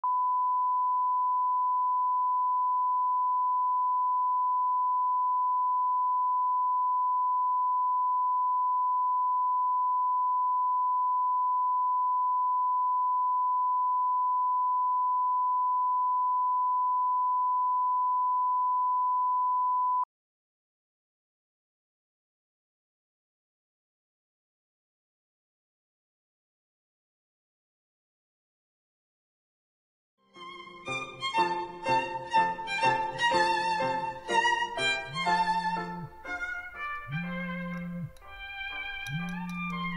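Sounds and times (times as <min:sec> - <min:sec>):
steady sine tone: 0:00.0 - 0:20.1.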